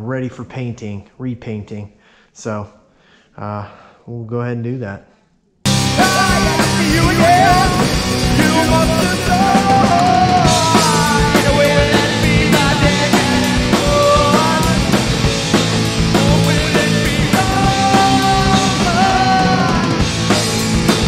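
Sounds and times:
drum kit beat: 5.7 - 21.0
loud rock music: 5.7 - 21.0.

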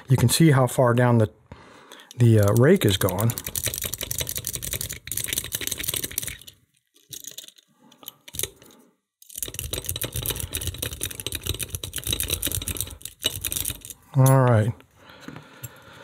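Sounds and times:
lock pick clicking and scraping: 2.0 - 14.6.

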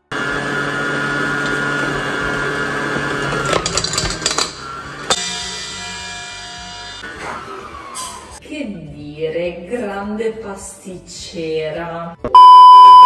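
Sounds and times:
stand mixer motor running: 0.0 - 5.1
mixer clattering: 0.2 - 6.1.

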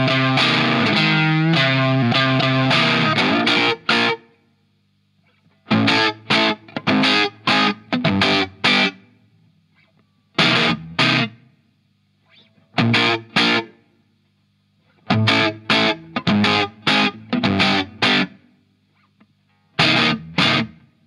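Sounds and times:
distorted electric guitar chord stabs: 0.0 - 4.3, 5.7 - 9.0, 9.8 - 11.4, 12.2 - 13.8, 15.1 - 18.5, 19.7 - 20.9.

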